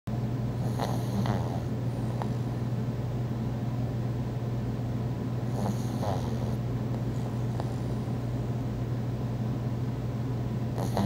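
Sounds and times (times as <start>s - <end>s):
dog snoring: 0.6s - 2.5s, 5.5s - 8.0s, 10.7s - 11.0s
rattling snorts: 10.8s - 11.0s.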